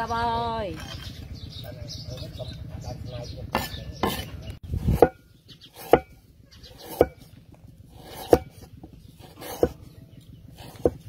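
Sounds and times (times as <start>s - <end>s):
cleaver chopping on wooden block: 3.6s - 4.3s, 4.9s - 5.2s, 5.8s - 6.2s, 6.8s - 7.3s, 8.0s - 9.8s, 10.6s - 11.0s.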